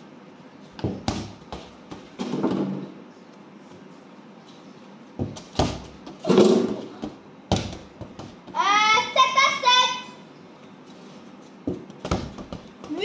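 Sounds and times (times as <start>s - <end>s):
ball knocking off walls: 0.8s - 3.0s, 5.2s - 8.6s, 11.6s - 13.0s
children's voices: 8.6s - 10.2s.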